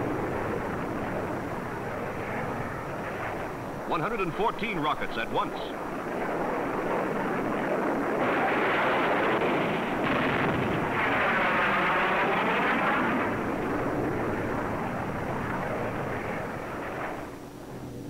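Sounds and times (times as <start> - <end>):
jet engine roar: 0.0 - 18.0
rocket blasts: 7.5 - 13.6.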